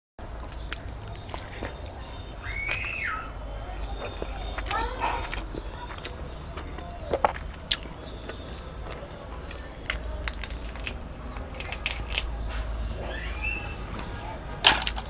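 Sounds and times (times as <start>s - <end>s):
fried shell crackling and snapping: 0.3s - 3.1s, 7.1s - 12.8s, 14.6s - 15.0s.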